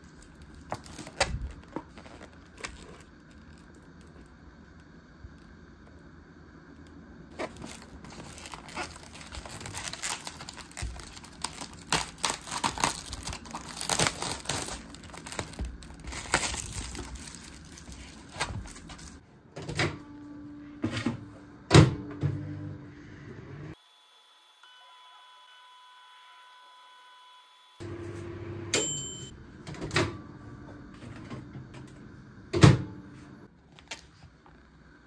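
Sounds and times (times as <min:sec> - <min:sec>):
plastic wrap crinkling and tearing: 0:00.0 - 0:04.8, 0:07.3 - 0:19.2
steady low hum: 0:00.0 - 0:23.8, 0:27.8 - 0:35.0.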